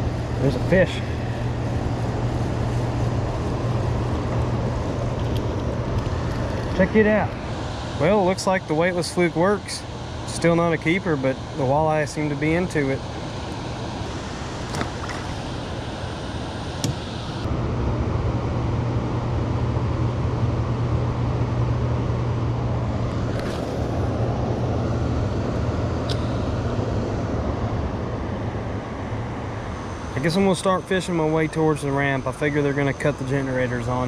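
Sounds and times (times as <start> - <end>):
generators rumbling: 0.0 - 34.0
water rushing: 11.6 - 15.9.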